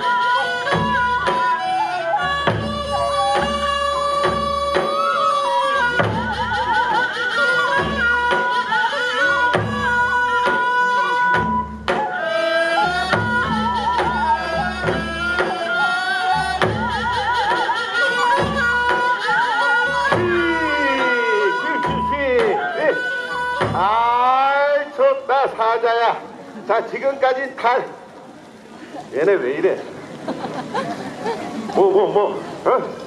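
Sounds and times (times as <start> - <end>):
wavering melody: 0.0 - 25.3
drum strokes: 0.1 - 12.2, 12.8 - 24.4.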